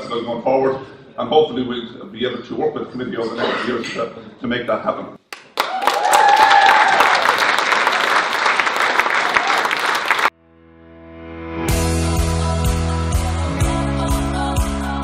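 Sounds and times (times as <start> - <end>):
audience applauding: 5.3 - 10.3
music: 10.4 - 15.0.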